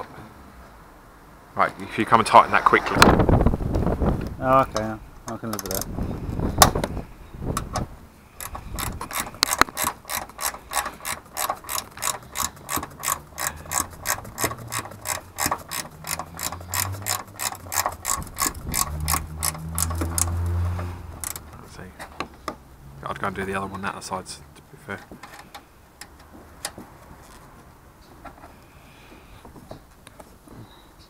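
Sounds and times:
ratchet wrench clicking: 5.6 - 5.9, 8.4 - 21.5.

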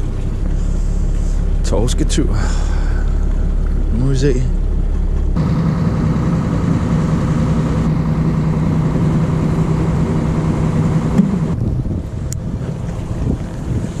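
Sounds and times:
boat engine humming: 0.0 - 14.0
water wash rushing: 5.4 - 14.0.

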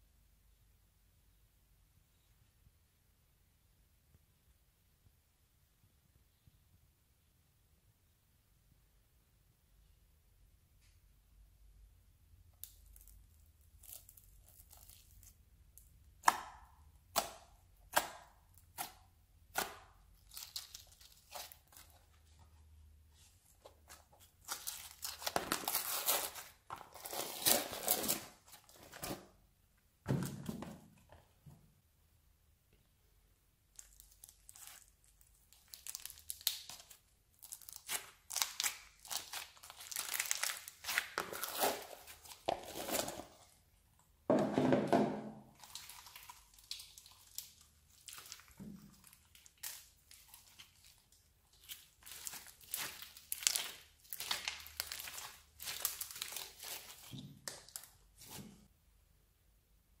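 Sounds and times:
slime crackling and squishing: 12.5 - 29.1, 33.7 - 43.6, 45.5 - 58.4.

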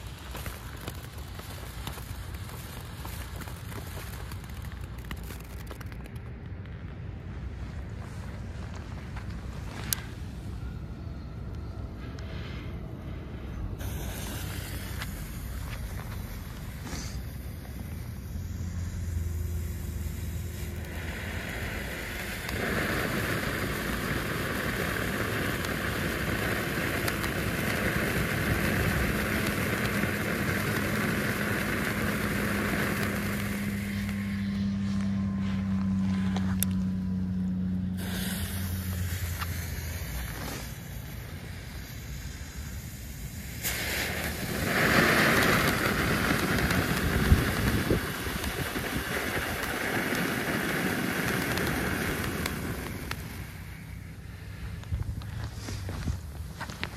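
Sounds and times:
sharp crack: 0.0 - 7.0, 43.4 - 53.7
firework fountain hissing: 0.0 - 56.9.

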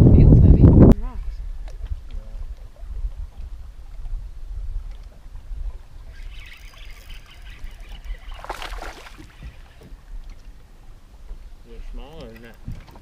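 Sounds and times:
wind rumbling on microphone: 0.0 - 13.0
water lapping against boat hull: 1.5 - 13.0.

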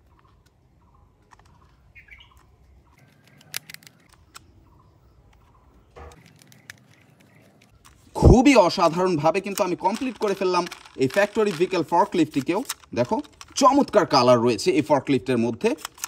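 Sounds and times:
screwdriver clicks and scraping: 2.4 - 4.4.

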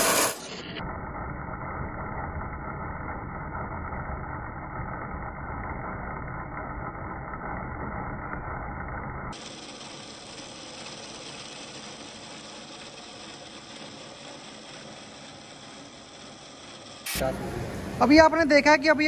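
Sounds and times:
chain mortiser cutting wood: 0.0 - 0.5, 9.3 - 17.2.

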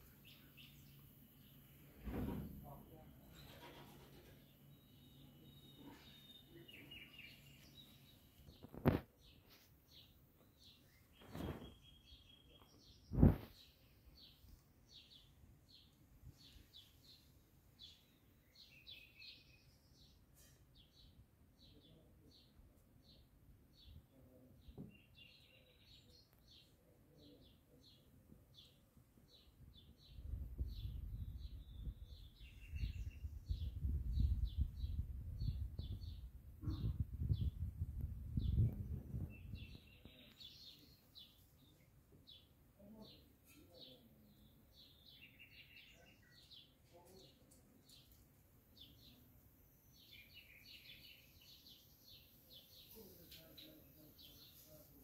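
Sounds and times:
small birds chirping faintly: 0.0 - 55.0
loud thump: 2.0 - 2.6.

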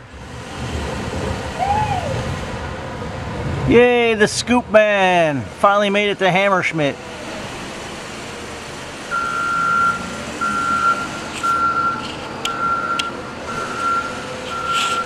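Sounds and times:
wheel loader engine running: 0.0 - 15.0
reversing alarm beeping: 9.1 - 15.0.

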